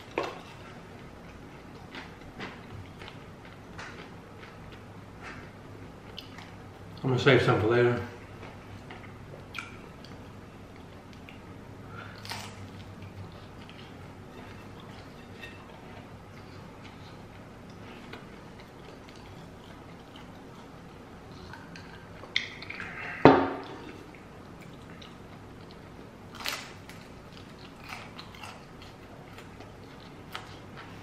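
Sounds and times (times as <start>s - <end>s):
crunchy chewing: 8.8s - 31.0s.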